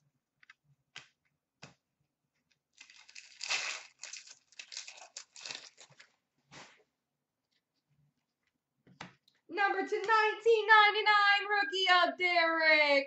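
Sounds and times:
card pack wrapper tearing open: 2.8s - 6.0s.

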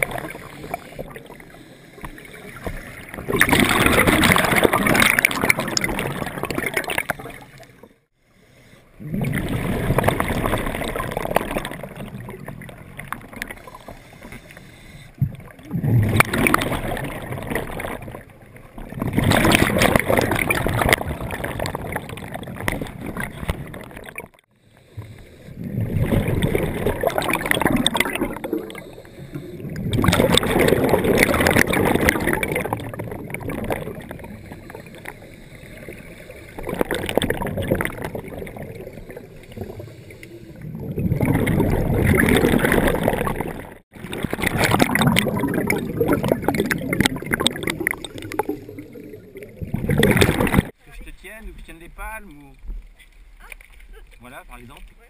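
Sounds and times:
underwater bubbles gurgling: 0.0s - 8.0s, 8.9s - 50.8s.

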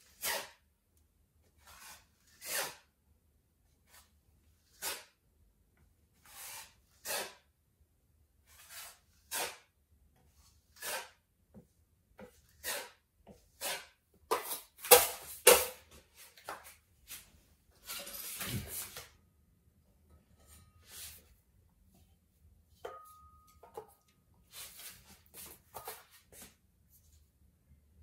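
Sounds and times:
putty knife scraping: 0.0s - 0.6s, 1.5s - 2.9s, 3.9s - 5.2s, 6.2s - 7.5s, 8.4s - 11.2s, 12.2s - 15.8s.

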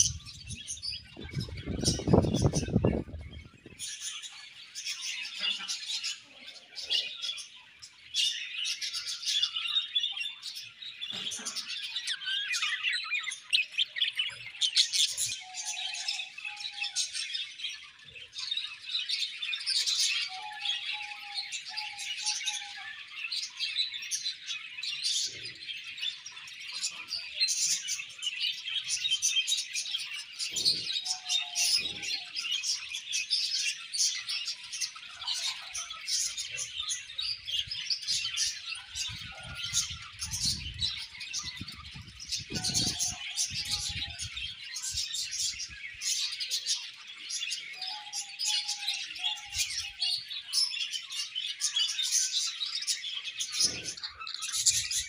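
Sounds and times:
budgerigars chattering: 52.0s - 55.0s.

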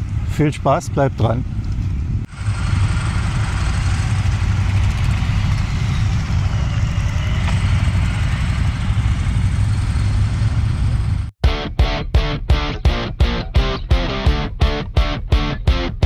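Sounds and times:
motorcycle engines idling: 0.0s - 11.3s.

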